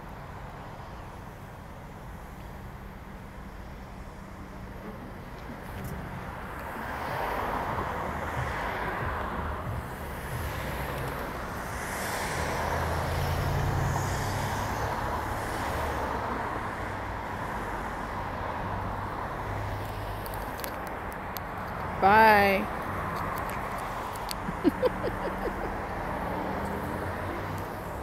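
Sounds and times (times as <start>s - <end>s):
cars passing: 0.0s - 28.0s
low engine hum: 1.9s - 15.4s.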